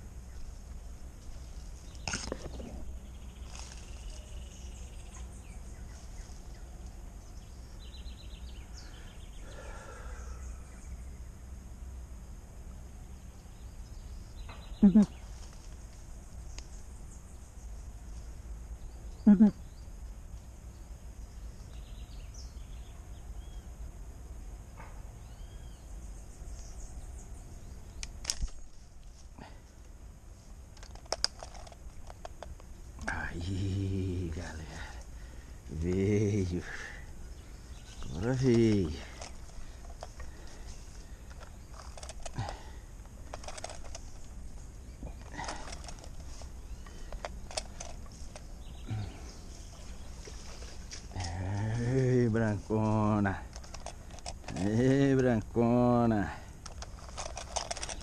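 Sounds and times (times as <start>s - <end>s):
constant low rumble: 0.0s - 58.0s
high insect drone: 0.0s - 58.0s
birds chirping and calling: 1.8s - 11.3s, 13.2s - 19.9s, 30.8s - 58.0s.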